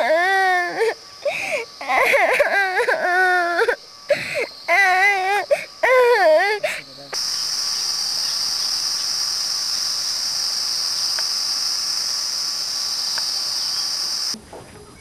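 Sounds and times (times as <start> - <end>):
crickets chirring: 0.0 - 15.0.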